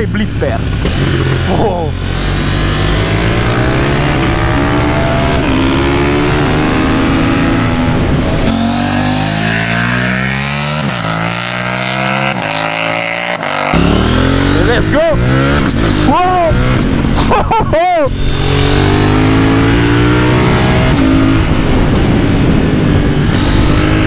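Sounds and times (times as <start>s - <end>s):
motorcycle engine revving: 0.0s - 24.0s
wind noise on microphone: 0.6s - 11.0s, 15.2s - 24.0s.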